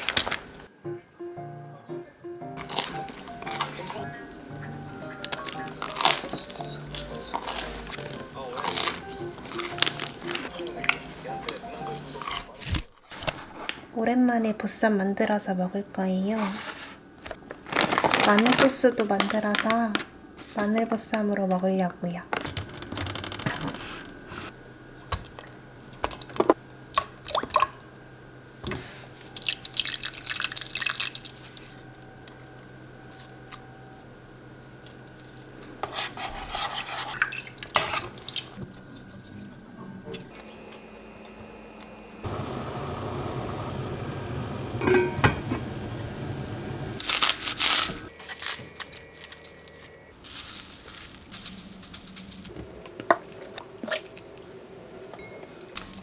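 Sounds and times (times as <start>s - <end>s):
jars and utensils clinking: 44.8s - 45.4s.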